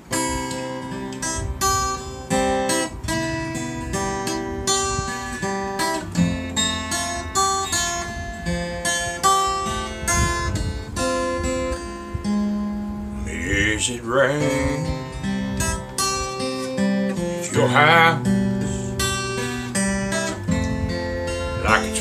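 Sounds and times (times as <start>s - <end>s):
acoustic guitar picking: 0.0s - 22.0s.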